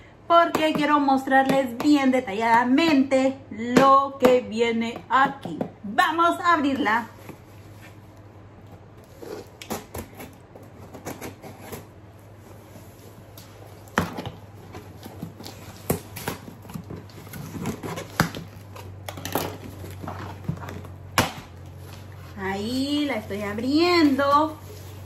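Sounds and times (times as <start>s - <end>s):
cardboard rustling: 6.9s - 25.0s
scissors cutting packing tape: 9.0s - 11.9s, 14.8s - 21.4s.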